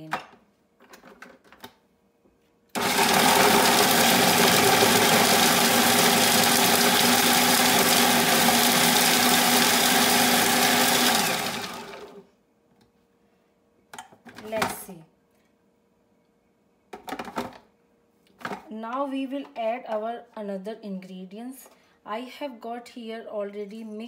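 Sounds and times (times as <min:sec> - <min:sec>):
food processor grinding: 0:02.8 - 0:12.2.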